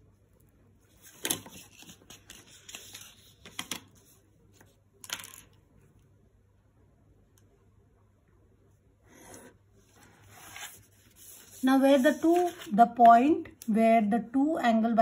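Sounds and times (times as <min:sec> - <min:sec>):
paper and ruler rustling scrapes: 0:00.9 - 0:03.7, 0:09.1 - 0:12.8.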